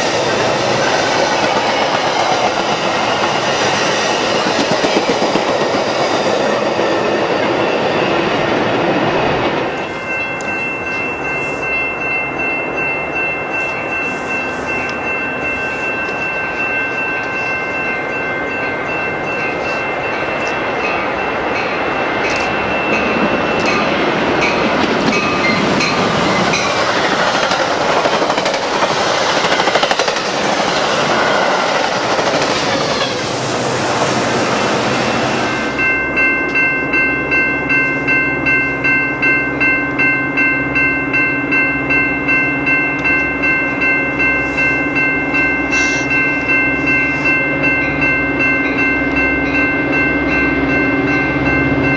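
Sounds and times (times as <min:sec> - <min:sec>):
train wheels rushing on rail: 0:00.0 - 0:51.9
ringing crossing bell: 0:09.6 - 0:28.8, 0:34.6 - 0:51.9.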